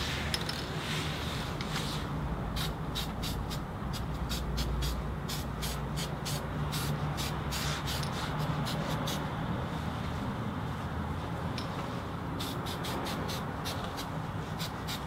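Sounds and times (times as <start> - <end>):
aerosol spray hissing bursts: 2.6 - 9.2, 12.4 - 15.0.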